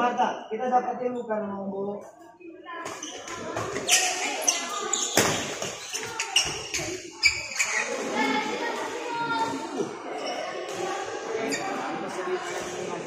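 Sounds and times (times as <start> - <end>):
rackets hitting shuttlecock: 5.0 - 6.7.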